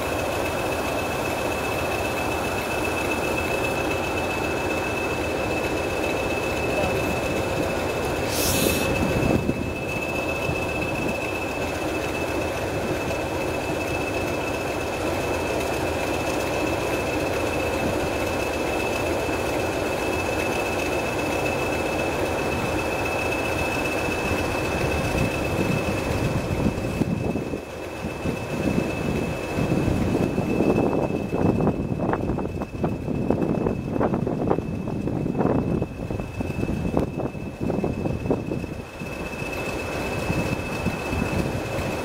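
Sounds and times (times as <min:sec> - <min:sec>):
diesel locomotive engine rumbling: 0:00.0 - 0:42.0
short high hiss: 0:08.2 - 0:09.0.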